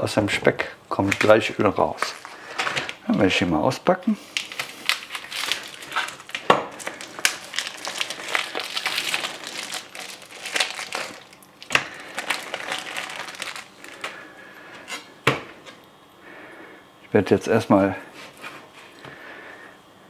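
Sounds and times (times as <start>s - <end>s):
packaging crinkling: 1.0s - 3.0s, 4.2s - 15.1s.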